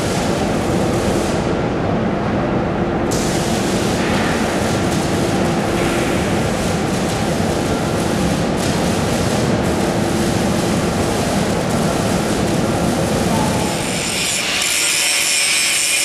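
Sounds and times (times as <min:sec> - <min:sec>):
faint constant hum: 0:00.0 - 0:16.0
machinery rumble: 0:09.5 - 0:14.2.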